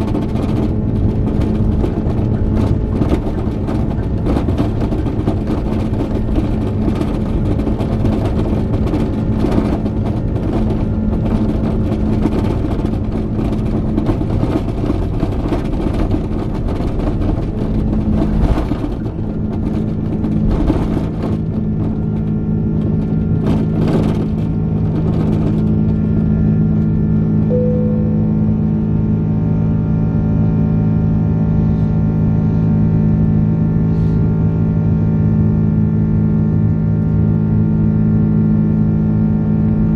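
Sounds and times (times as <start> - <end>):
small knocks and jolts: 0.0 - 26.0
jet engines at takeoff power: 0.0 - 39.9
wheels rumbling on runway: 0.0 - 39.9.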